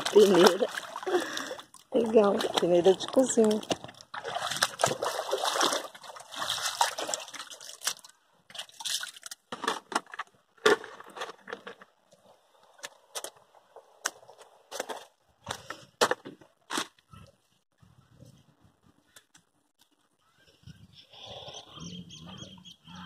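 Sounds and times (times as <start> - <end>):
water sloshing in a sieve: 0.0 - 9.4.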